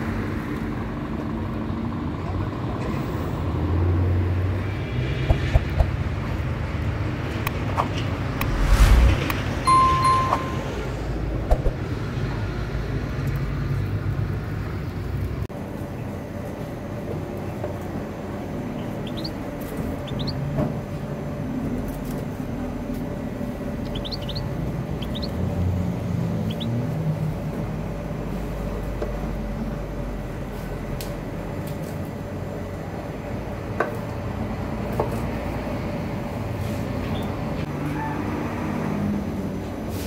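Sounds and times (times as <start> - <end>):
steady low rumble: 8.1 - 11.8.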